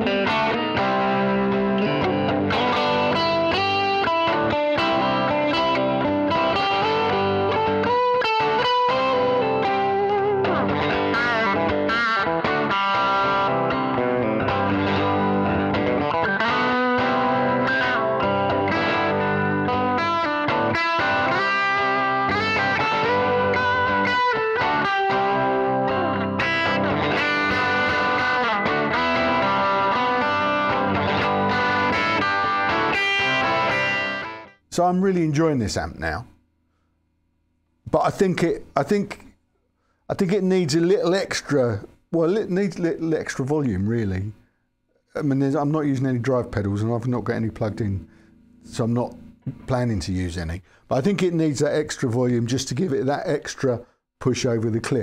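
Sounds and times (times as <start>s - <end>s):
electric guitar crunch tone: 0.0s - 34.7s, 46.2s - 50.1s.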